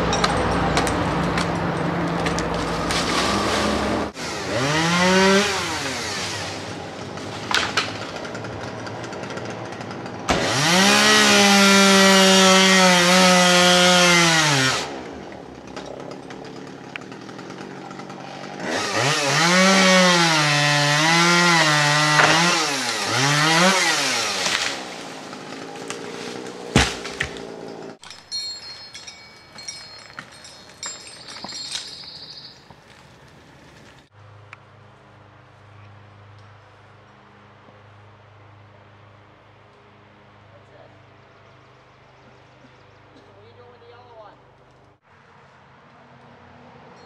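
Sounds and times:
chainsaw revving and cutting wood: 0:00.8 - 0:28.0.

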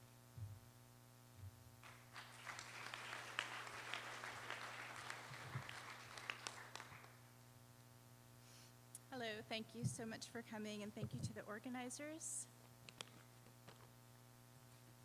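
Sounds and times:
electrical hum: 0:00.0 - 0:15.0
group applauding: 0:01.8 - 0:07.3.

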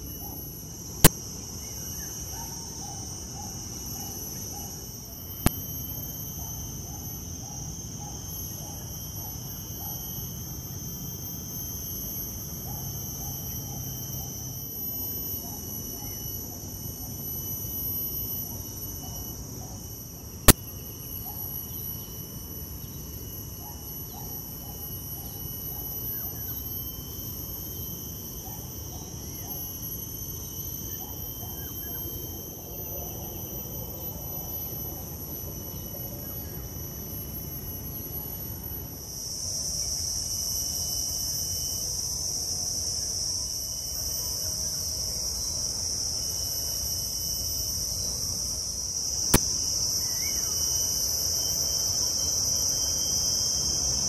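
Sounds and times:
high-pitched insect chorus: 0:00.0 - 0:54.0
sharp click: 0:49.3 - 0:49.7.

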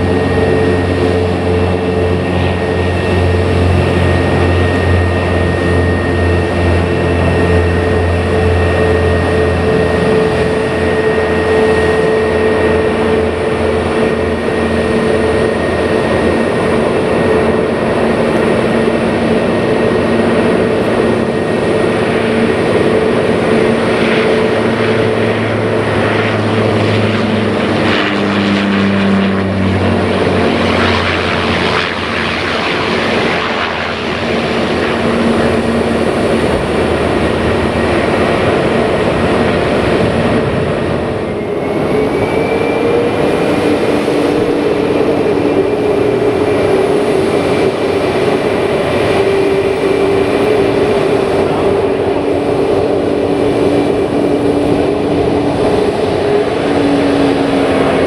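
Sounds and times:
jet engines whining: 0:00.0 - 0:58.0.

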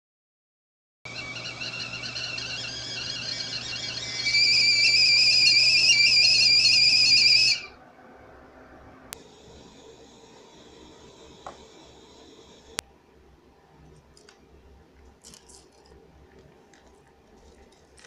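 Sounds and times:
kettle whistling: 0:01.1 - 0:07.8, 0:09.2 - 0:12.8.

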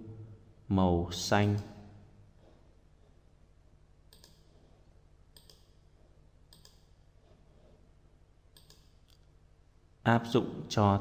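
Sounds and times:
low steady hum: 0:00.0 - 0:11.0
mouse button clicks: 0:08.6 - 0:09.0.

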